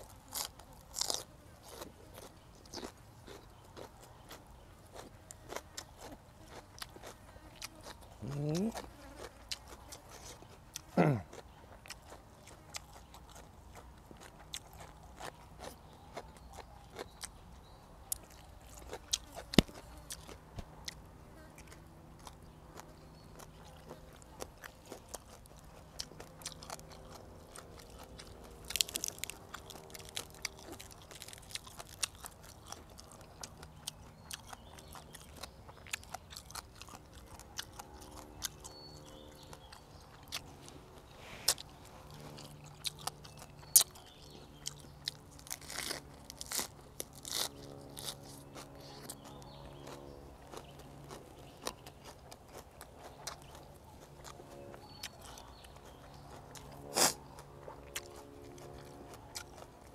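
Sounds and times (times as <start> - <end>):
small bones crunching: 0.0 - 17.4, 18.1 - 59.9
chewing and crunching: 0.0 - 59.9.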